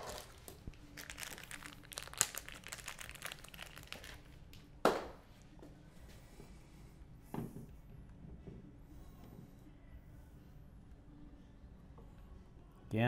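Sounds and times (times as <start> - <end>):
crinkling handling noise: 0.0 - 4.7.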